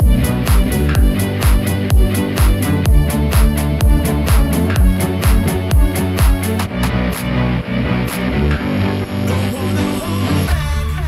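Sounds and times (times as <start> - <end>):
dance music with thumping beat: 0.0 - 11.0.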